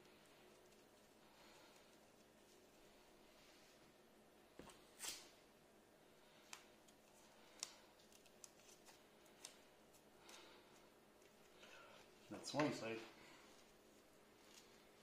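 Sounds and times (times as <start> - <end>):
adhesive tape clicks and crackles: 6.4 - 10.5
tape rustling: 6.4 - 12.8, 13.5 - 15.0.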